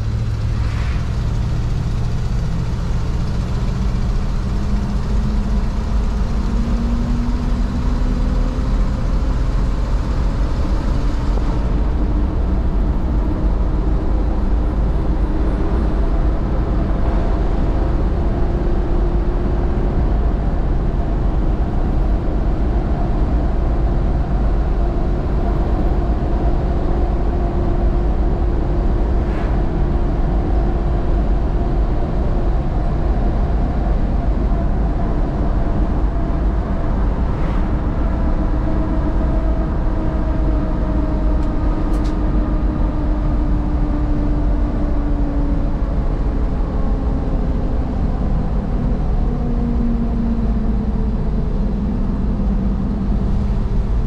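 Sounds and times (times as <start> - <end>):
road and drivetrain rumble: 0.0 - 54.0
engine note: 28.0 - 31.6, 36.0 - 39.9.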